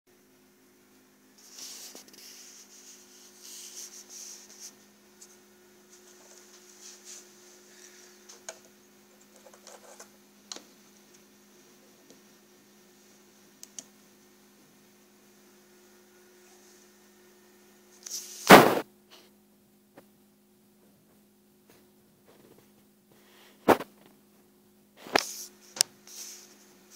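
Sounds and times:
low electrical hum: 0.1s - 26.9s
loud knock: 18.5s - 18.8s.

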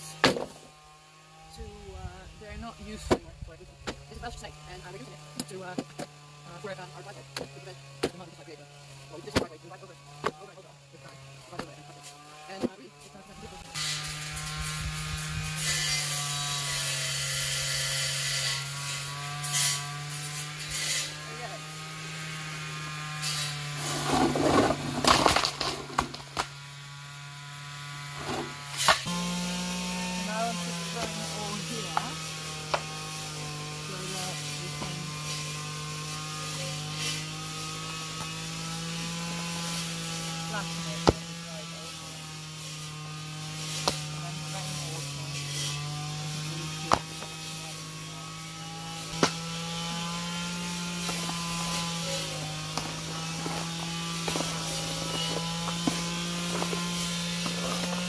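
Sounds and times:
sharp knocks of stones landing: 0.1s - 0.7s, 24.1s - 26.5s, 43.8s - 44.1s, 49.2s - 49.4s
stones clattering from wheelbarrow: 23.8s - 26.2s.

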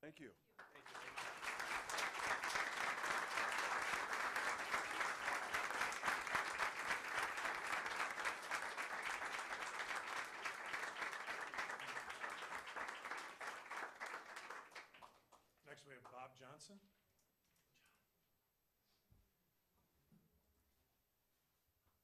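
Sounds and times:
audience applauding: 0.6s - 15.4s.

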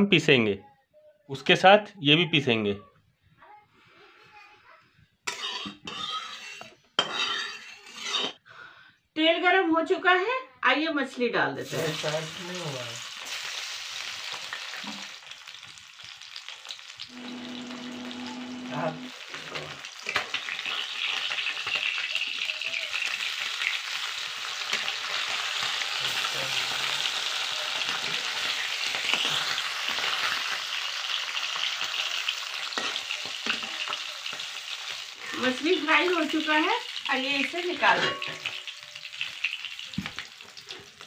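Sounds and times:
metal spatula clicking and scraping: 5.3s - 8.4s
fish sizzling in hot oil: 11.6s - 41.0s.

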